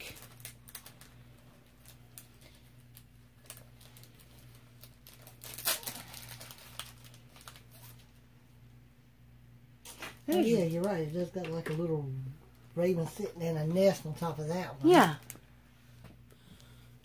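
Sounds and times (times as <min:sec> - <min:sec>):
plastic crinkling and clicks: 0:00.0 - 0:08.1
low steady hum: 0:00.0 - 0:17.0.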